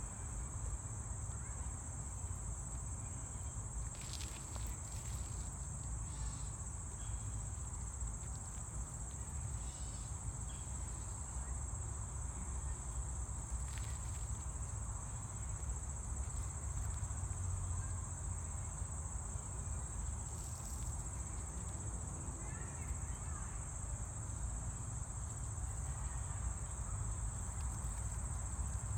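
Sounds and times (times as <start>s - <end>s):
insects chorus: 0.0s - 28.9s.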